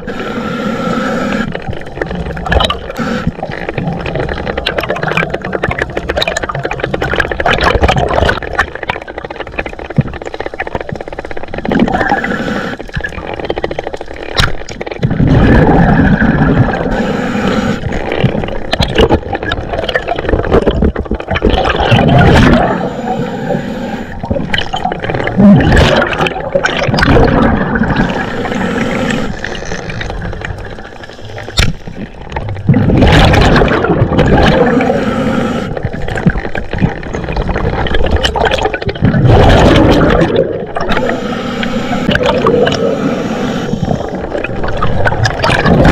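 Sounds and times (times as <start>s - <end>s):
regulator inhalation hiss: 0.0s - 1.5s, 16.9s - 17.9s, 22.7s - 24.2s, 28.0s - 29.4s, 34.7s - 35.8s, 41.0s - 44.2s
gurgling rush of exhaled bubbles: 1.3s - 45.9s.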